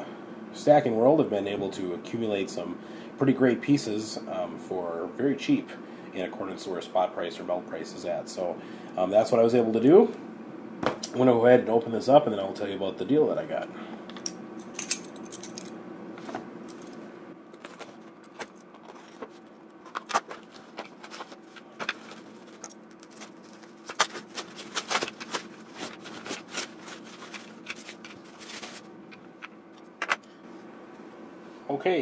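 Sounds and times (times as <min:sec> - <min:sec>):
faint steady hum: 0:00.0 - 0:32.0
cardboard parcel being opened: 0:17.5 - 0:28.9
plastic wrapping crinkling: 0:17.5 - 0:29.3.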